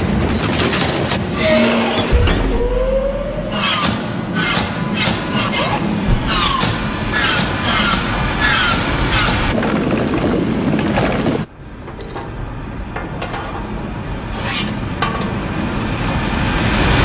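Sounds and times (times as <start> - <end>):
mechanical rush: 1.0 - 11.5
small parts clicking and clinking: 10.8 - 13.6.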